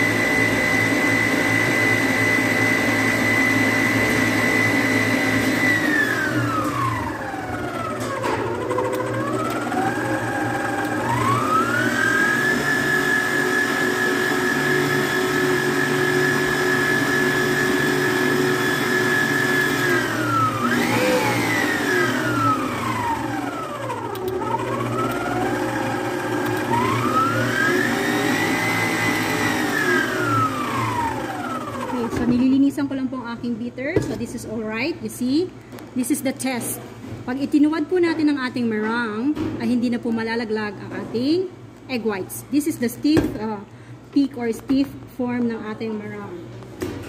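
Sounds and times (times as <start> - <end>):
stand mixer motor whirring: 0.0 - 32.4.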